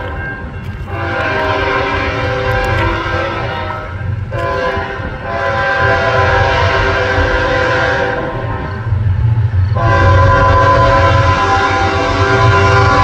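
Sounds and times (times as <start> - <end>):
locomotive air horn chord: 0.0 - 9.0, 9.8 - 13.0.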